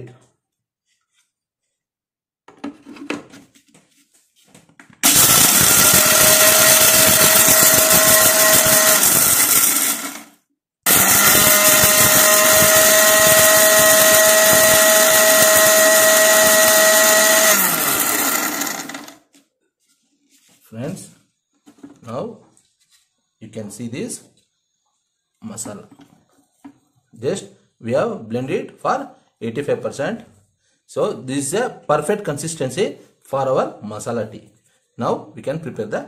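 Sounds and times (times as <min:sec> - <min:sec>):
mixer grinder motor grinding spices: 0:05.0 - 0:10.3, 0:10.9 - 0:19.3.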